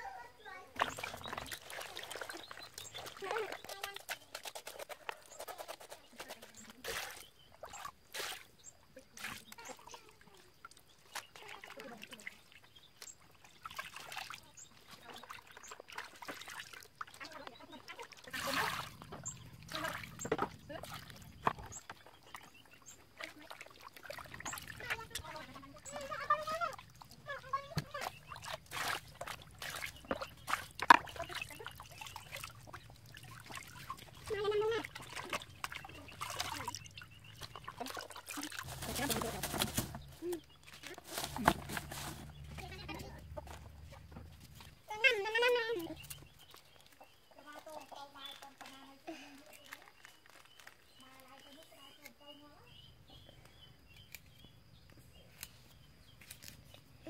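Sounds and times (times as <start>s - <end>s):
water sloshing in plastic basin: 0.5s - 53.3s
small wet clicks: 0.8s - 45.0s, 45.7s - 52.4s, 53.1s - 57.0s.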